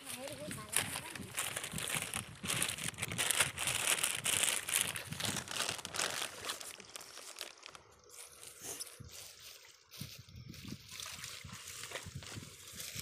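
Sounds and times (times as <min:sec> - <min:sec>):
dry plant stems crackling: 0:00.0 - 0:10.1.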